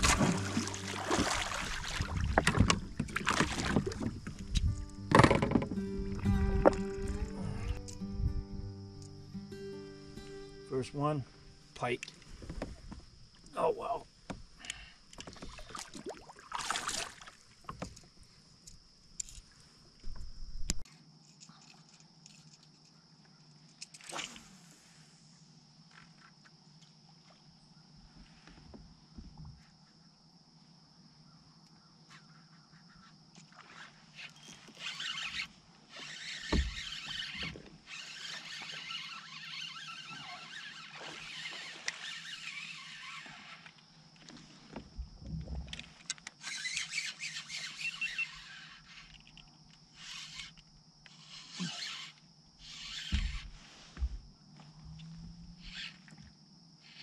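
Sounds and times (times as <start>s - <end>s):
crickets chirping: 0.0s - 57.0s
fishing reel cranking whir: 34.2s - 43.6s, 46.4s - 53.4s, 55.5s - 56.0s.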